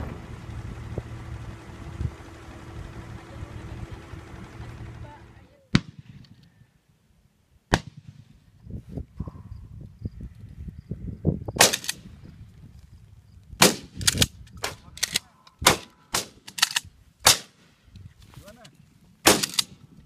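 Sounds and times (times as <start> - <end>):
wind rumble on microphone: 0.0 - 5.1, 8.4 - 15.7
shotguns firing: 5.7 - 6.4, 11.6 - 12.1, 13.6 - 17.6, 19.2 - 19.8.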